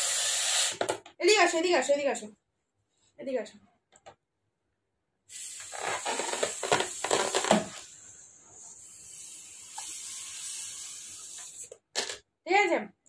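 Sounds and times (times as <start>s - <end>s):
air blown into balloon: 0.0s - 0.8s, 5.3s - 11.7s
balloon rubbing and squeaking: 5.4s - 11.8s.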